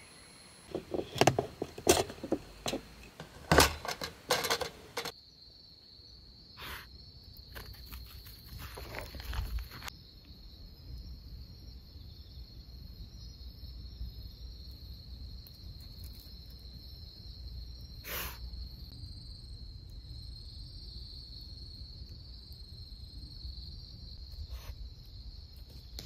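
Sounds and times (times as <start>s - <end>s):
crickets chirring: 0.0s - 26.0s
sharp clicks and knocks: 0.7s - 5.1s.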